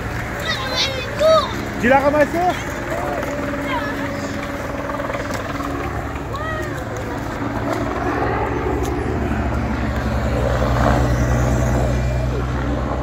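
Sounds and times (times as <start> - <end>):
cars running: 0.0 - 13.0
helicopter drone overhead: 0.0 - 13.0
race motorcycle passing: 0.0 - 13.0.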